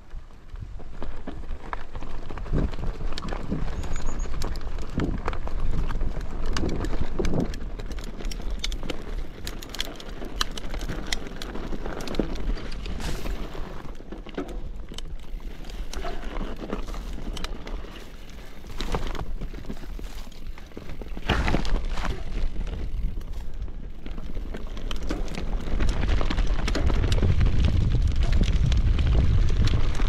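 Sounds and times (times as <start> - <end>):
bike tyres crunching over stones: 0.0 - 30.0
bike clicks and rattles: 0.1 - 30.0
wind on microphone: 25.6 - 30.0.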